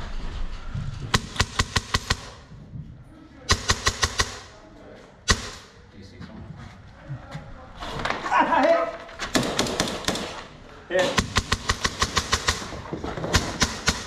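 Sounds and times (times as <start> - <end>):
airsoft gun shots: 5.3 - 5.7, 11.0 - 14.0.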